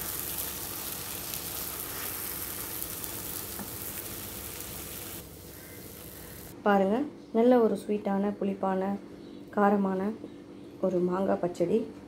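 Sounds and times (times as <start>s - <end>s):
food sizzling in a pan: 0.0s - 6.6s.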